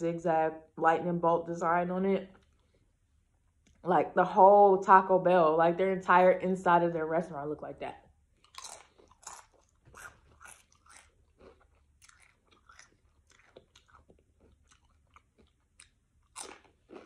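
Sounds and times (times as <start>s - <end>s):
tortilla chips crunching: 8.4s - 17.0s.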